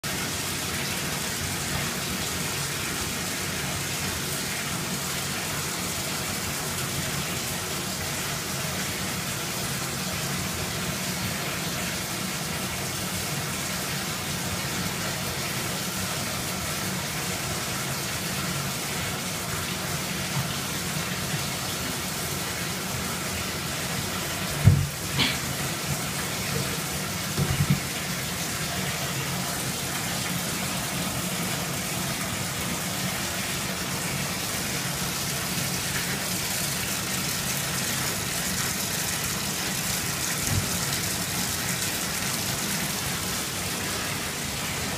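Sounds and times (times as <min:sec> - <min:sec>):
water rushing from tap: 0:00.0 - 0:44.9
knocks: 0:24.6 - 0:25.0, 0:27.4 - 0:27.9.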